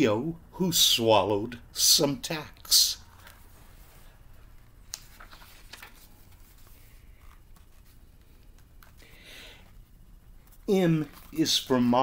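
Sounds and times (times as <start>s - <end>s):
book pages turning: 3.1s - 12.0s.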